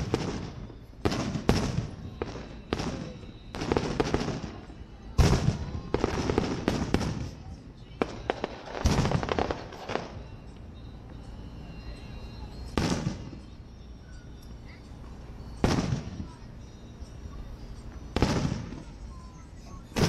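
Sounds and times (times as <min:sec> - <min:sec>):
fireworks bursting with booms: 0:00.0 - 0:10.4, 0:12.5 - 0:13.5, 0:15.4 - 0:16.4, 0:18.0 - 0:19.0.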